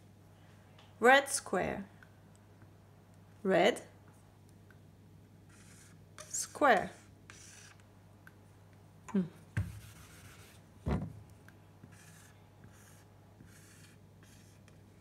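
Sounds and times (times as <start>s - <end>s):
marker rubbing on whiteboard: 5.5s - 7.8s, 9.6s - 10.6s, 11.8s - 15.0s.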